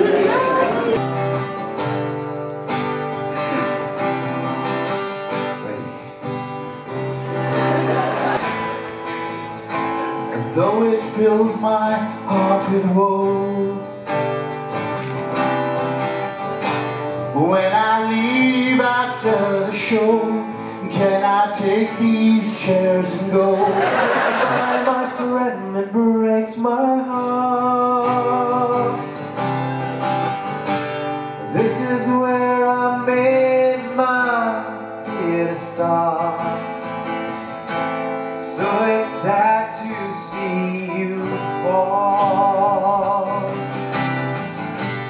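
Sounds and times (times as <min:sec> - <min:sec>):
person singing: 0:00.0 - 0:01.0, 0:09.8 - 0:14.0, 0:17.3 - 0:23.9, 0:24.5 - 0:29.0, 0:38.5 - 0:43.7
acoustic guitar strummed and plucked: 0:00.0 - 0:45.0.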